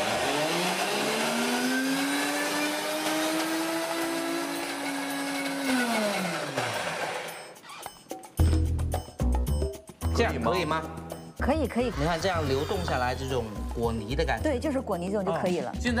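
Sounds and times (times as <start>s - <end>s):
blender motor whining: 0.0s - 7.6s, 12.0s - 13.4s.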